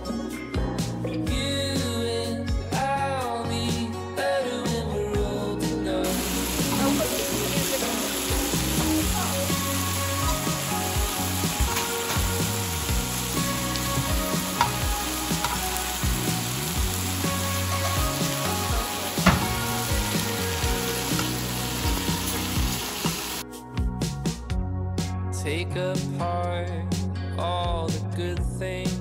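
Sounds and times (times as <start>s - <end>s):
soft background music: 0.0s - 29.0s
meat sizzling on grill pan: 6.0s - 23.4s
metal tongs clicking on pan: 14.5s - 15.6s.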